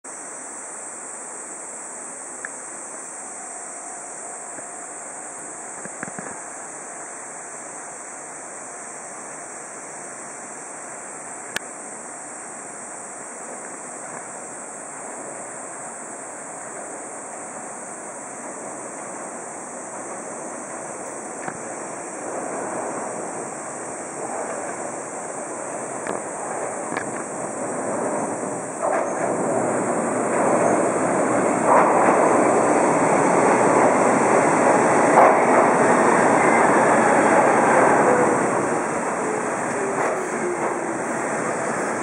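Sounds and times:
river rushing: 19.5 - 42.0.

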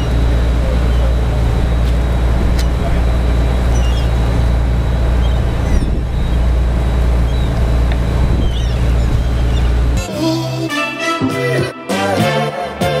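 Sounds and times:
boat engine drone: 0.0 - 13.0
faint seagull calls: 3.7 - 4.1, 8.4 - 9.8.

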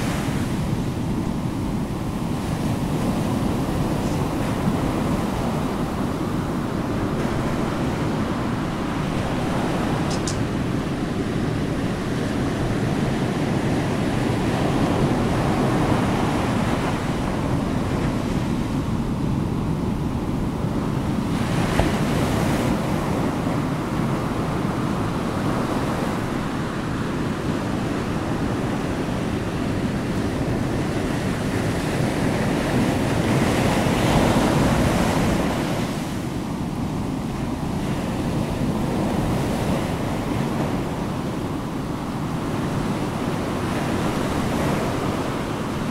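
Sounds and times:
continuous rushing noise: 0.0 - 45.9.

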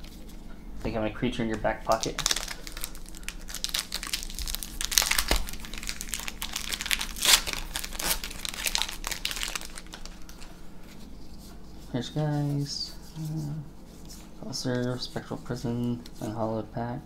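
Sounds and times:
foil wrapper crinkling: 1.6 - 11.0.

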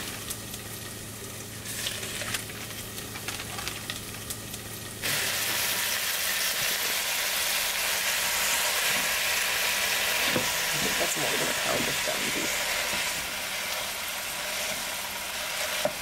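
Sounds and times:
meat sizzling in a pot: 0.0 - 16.0.

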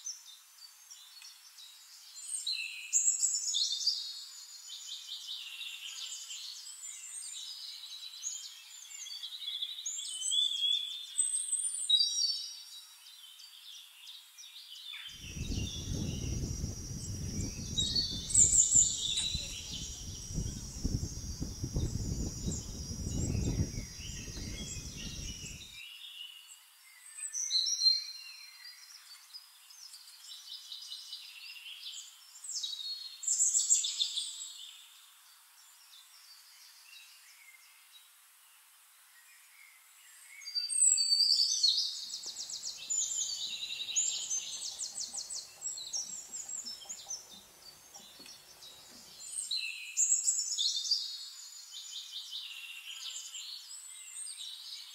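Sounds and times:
low rumbling noise: 15.2 - 25.6
birds chirping and whistling: 15.2 - 25.8, 42.3 - 47.4.

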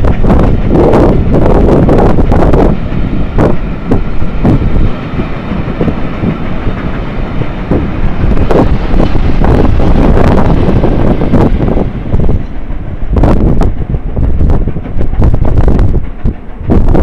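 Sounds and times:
train rumbling past: 0.0 - 17.0.

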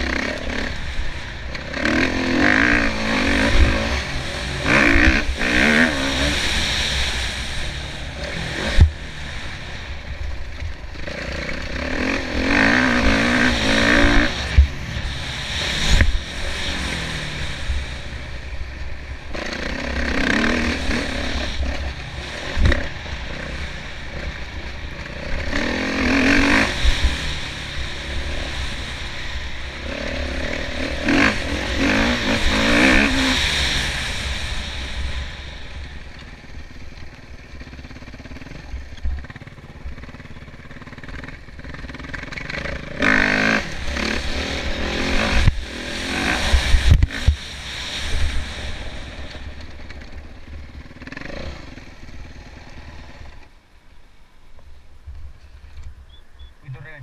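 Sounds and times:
motocross engine revving: 0.0 - 53.5, 56.6 - 57.0
wind rumble on microphone: 43.7 - 50.7.

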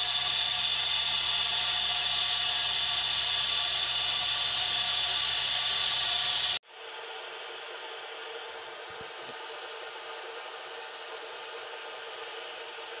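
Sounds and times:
milling machine cutting metal: 0.0 - 6.6.

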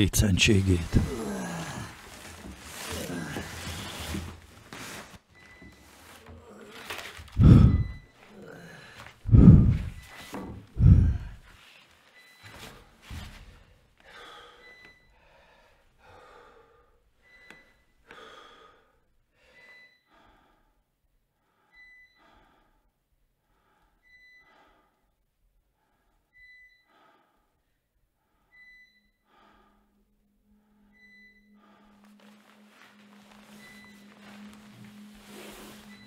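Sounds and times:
man breathing heavily: 6.3 - 11.9, 13.6 - 28.5, 29.2 - 36.0
low steady hum: 7.4 - 8.0, 9.3 - 10.0, 10.8 - 11.4.

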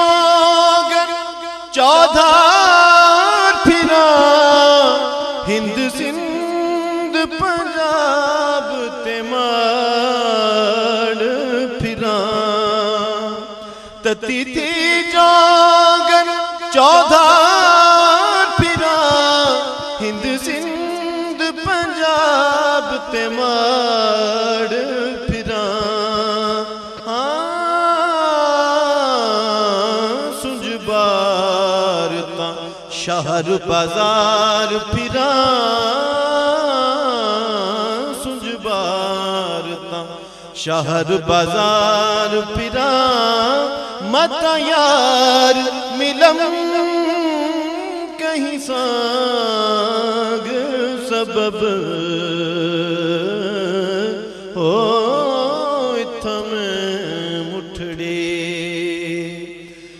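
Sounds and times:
solo voice singing devotional song: 0.0 - 59.9.

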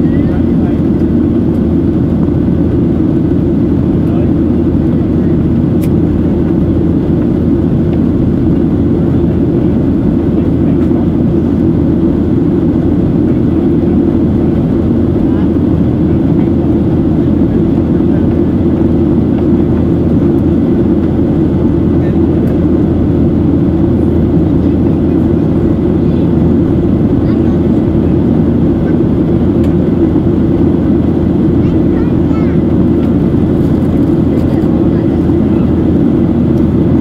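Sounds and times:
air rushing over fuselage: 0.0 - 37.0
jet engine drone: 0.0 - 37.0.

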